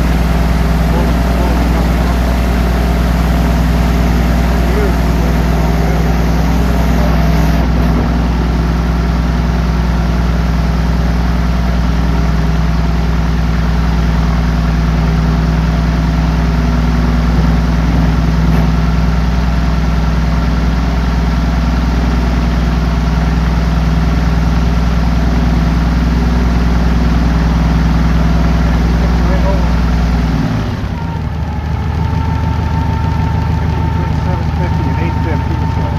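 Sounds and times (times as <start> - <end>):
aircraft engine and propeller running: 0.0 - 35.9.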